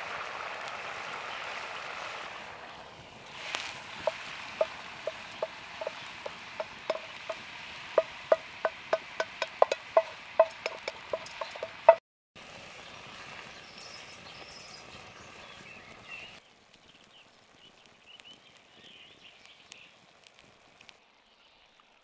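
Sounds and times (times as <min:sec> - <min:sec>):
spoon tapping metal bowl: 0:04.0 - 0:07.4, 0:08.0 - 0:12.0.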